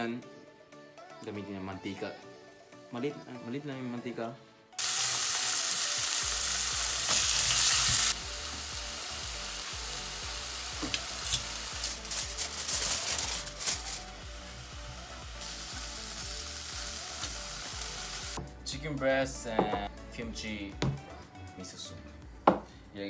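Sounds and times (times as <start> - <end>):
meat sizzling in frying pan: 4.8 - 18.4
aluminium foil crinkling: 10.9 - 14.2.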